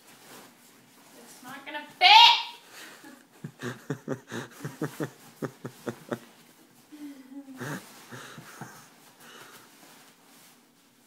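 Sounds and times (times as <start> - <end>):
person laughing wheezily: 3.5 - 6.2, 7.4 - 9.0.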